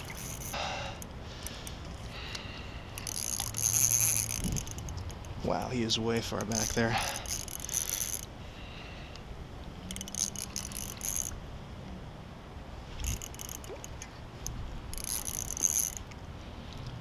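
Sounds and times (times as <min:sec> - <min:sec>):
fishing reel clicking: 0:00.0 - 0:08.4, 0:09.8 - 0:11.4, 0:13.0 - 0:16.2.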